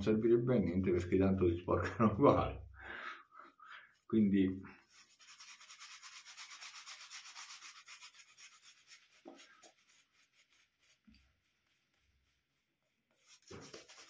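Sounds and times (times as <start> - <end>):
shaving brush strokes: 4.8 - 14.0.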